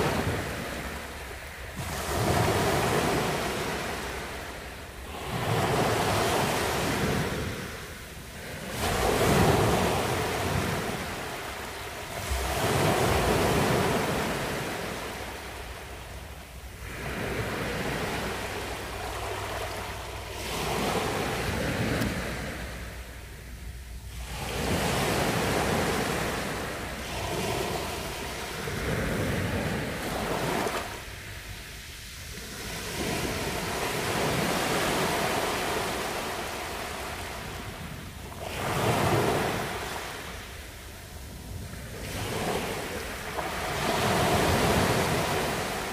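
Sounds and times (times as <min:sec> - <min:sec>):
sea waves breaking on sand: 0:00.0 - 0:45.9.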